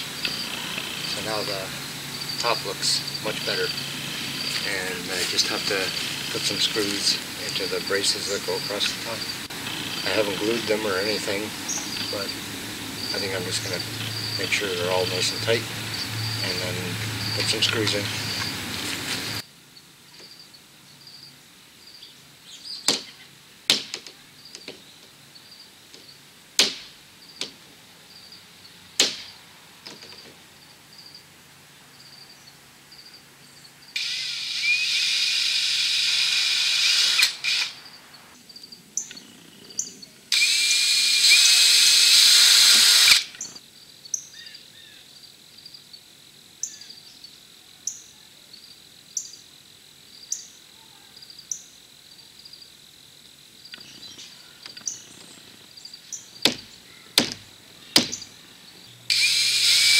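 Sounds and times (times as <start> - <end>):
crickets chirping: 0.0 - 59.9
sharp clicks and knocks: 23.7 - 25.1, 29.0 - 30.4, 56.4 - 58.2
power drill driving screws: 34.0 - 37.8, 40.3 - 43.4, 59.1 - 59.9.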